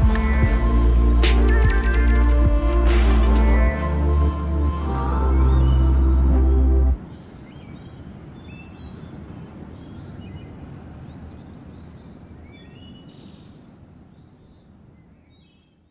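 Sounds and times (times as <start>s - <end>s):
low background rush: 0.0s - 12.4s
birds chirping: 0.0s - 15.9s.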